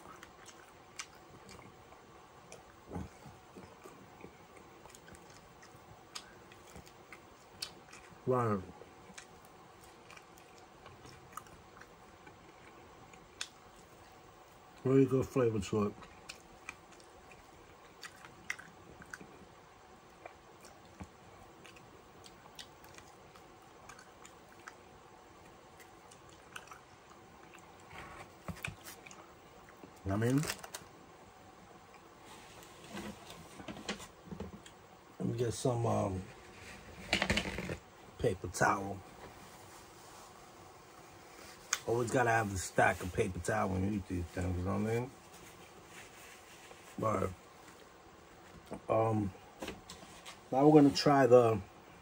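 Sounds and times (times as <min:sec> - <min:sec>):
person chewing food: 0:00.0 - 0:14.8, 0:16.0 - 0:30.0.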